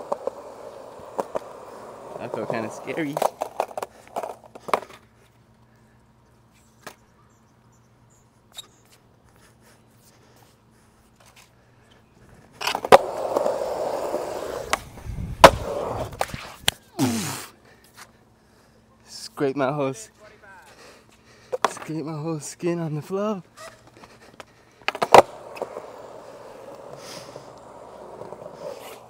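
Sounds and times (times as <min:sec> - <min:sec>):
skateboard wheels rolling on concrete: 0:00.0 - 0:07.1, 0:08.4 - 0:18.2, 0:19.1 - 0:29.0
skateboard sharp clack: 0:15.4 - 0:16.8, 0:24.9 - 0:25.8.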